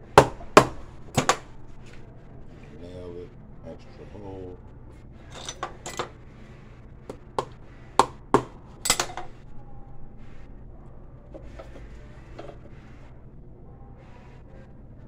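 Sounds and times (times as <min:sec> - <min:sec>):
low steady hum: 0:00.0 - 0:15.0
hand tools tapping metal: 0:00.2 - 0:01.5, 0:05.3 - 0:06.2, 0:07.1 - 0:09.4, 0:11.4 - 0:12.7.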